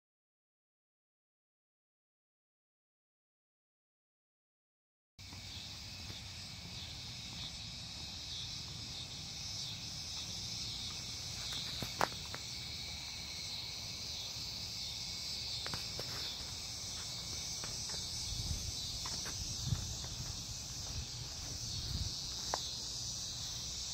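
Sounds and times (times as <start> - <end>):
insect chorus: 5.2 - 23.9.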